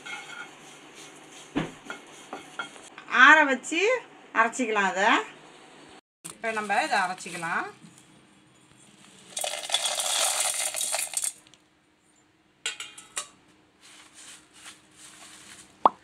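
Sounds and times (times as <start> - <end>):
grains rattling into metal jar: 9.3 - 11.5.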